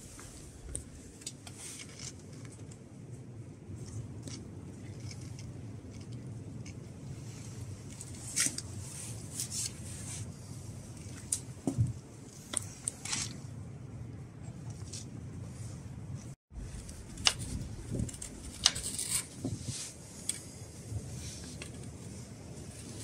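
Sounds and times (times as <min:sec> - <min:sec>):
low background hum: 0:00.0 - 0:23.0
knife shaving wood: 0:16.7 - 0:23.0.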